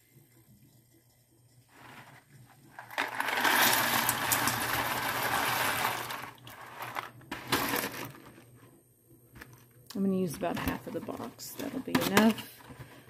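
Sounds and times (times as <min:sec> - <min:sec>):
dry pasta rattling into pan: 0:02.8 - 0:08.2.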